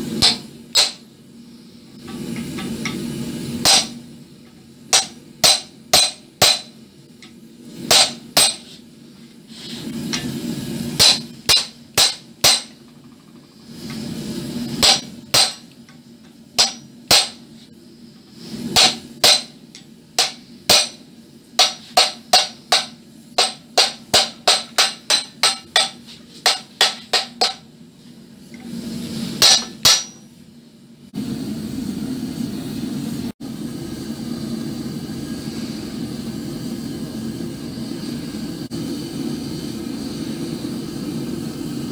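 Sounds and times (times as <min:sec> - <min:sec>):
hammer striking metal: 0:00.2 - 0:01.0, 0:03.6 - 0:04.0, 0:04.9 - 0:06.8, 0:07.9 - 0:08.7, 0:11.0 - 0:12.8, 0:14.8 - 0:15.8, 0:16.6 - 0:17.5, 0:18.8 - 0:21.0, 0:21.6 - 0:27.7, 0:29.4 - 0:30.3.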